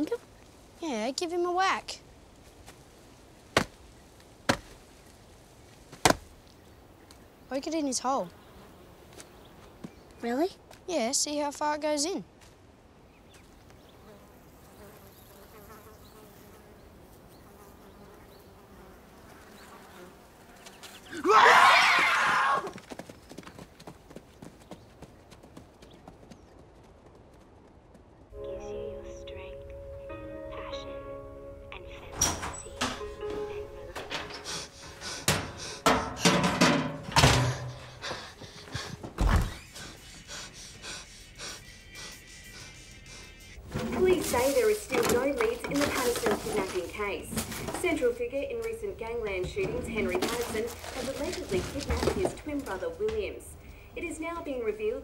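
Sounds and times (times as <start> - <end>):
flies buzzing: 5.9 - 10.2, 13.4 - 21.3, 28.5 - 36.4, 37.1 - 54.8
loud scream: 21.1 - 22.7
knocks and clunks in cabinet: 35.3 - 37.7.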